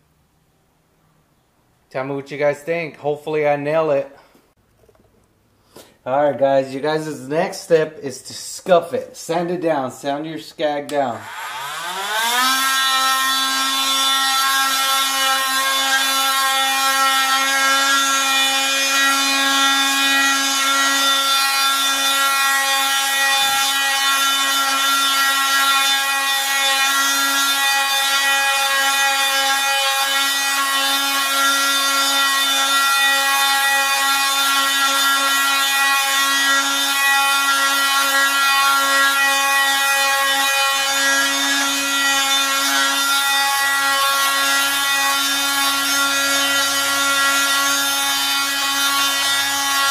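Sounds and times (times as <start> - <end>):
power tool whine: 11.2 - 49.9.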